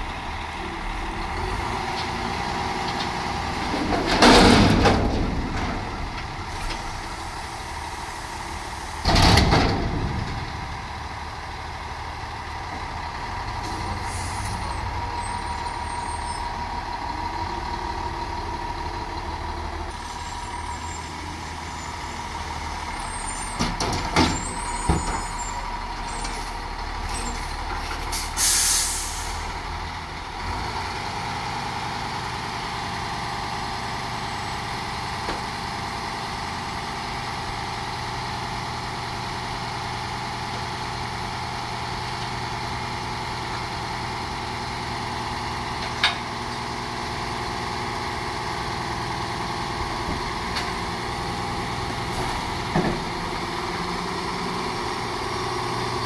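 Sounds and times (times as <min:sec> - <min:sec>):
garbage truck diesel engine whining: 0:00.0 - 0:56.0
air brake hiss: 0:13.7 - 0:14.6, 0:28.1 - 0:29.5.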